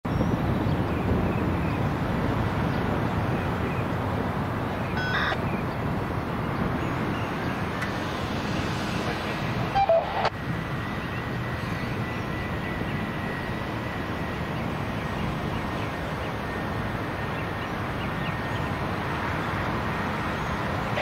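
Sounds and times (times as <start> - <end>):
vehicle rumble: 0.0 - 21.0
high chirp: 5.0 - 5.4
short tone: 5.0 - 5.4.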